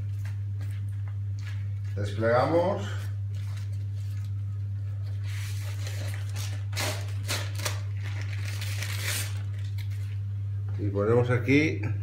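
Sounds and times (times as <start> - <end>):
steady low hum: 0.0 - 12.0
paper rustling and crinkling: 3.0 - 10.2.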